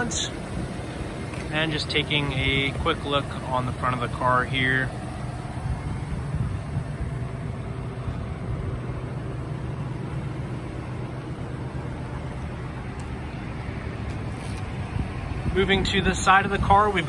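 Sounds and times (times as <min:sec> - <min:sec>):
low mechanical hum: 0:00.0 - 0:17.0
rumbling background noise: 0:00.0 - 0:17.0.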